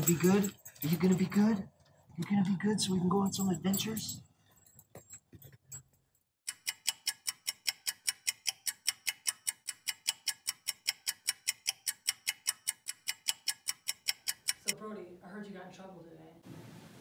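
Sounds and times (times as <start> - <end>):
clock ticking: 6.5 - 14.8.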